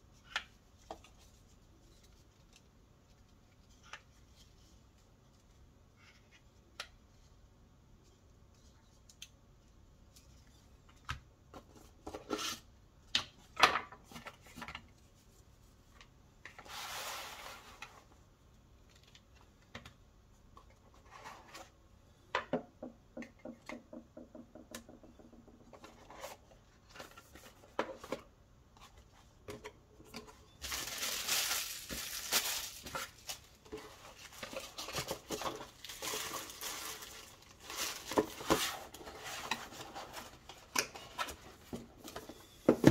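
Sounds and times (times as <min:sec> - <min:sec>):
cardboard rustling and scraping: 0:16.6 - 0:18.1, 0:20.9 - 0:21.8, 0:25.7 - 0:29.5, 0:30.2 - 0:42.9
plastic parts knocking on wooden desk: 0:22.4 - 0:25.8.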